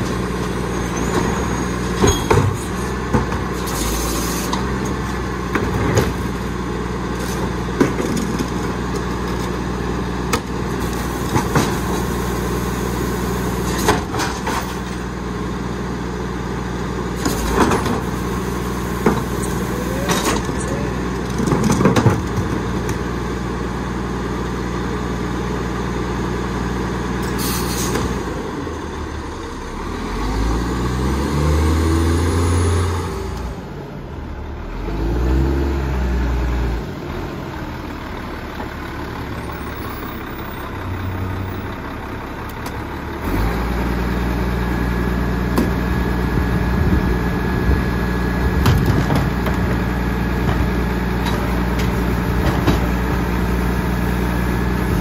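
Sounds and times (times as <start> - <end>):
garbage truck engine: 0.0 - 55.0
air brakes hissing: 27.2 - 28.0.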